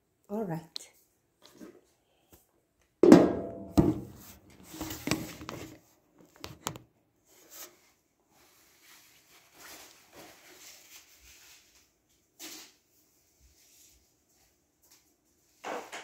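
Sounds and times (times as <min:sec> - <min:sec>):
object knocking: 0:03.0 - 0:04.3.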